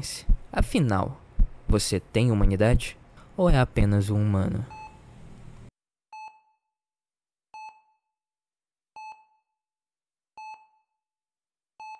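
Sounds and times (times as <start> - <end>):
heart-rate monitor beeping: 0.2 - 0.8, 1.4 - 2.9, 7.6 - 8.0, 9.0 - 9.5, 10.4 - 10.9.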